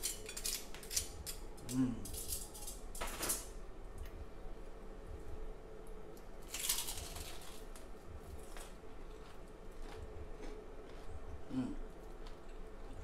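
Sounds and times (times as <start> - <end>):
fried chicken crust crunching: 8.4 - 11.1.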